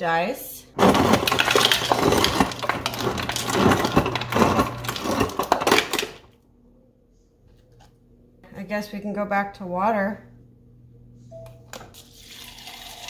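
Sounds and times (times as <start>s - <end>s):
dispenser motor humming: 0.7s - 6.3s
ice cubes clattering into cup: 0.8s - 6.2s.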